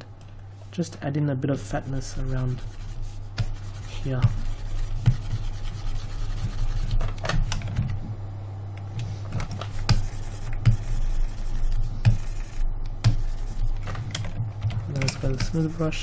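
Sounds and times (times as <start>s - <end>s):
low electrical hum: 0.0s - 16.0s.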